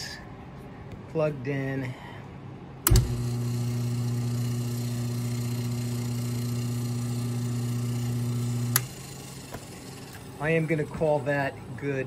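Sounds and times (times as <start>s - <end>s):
switch click: 2.8s - 3.2s
electric motor humming: 2.8s - 11.2s.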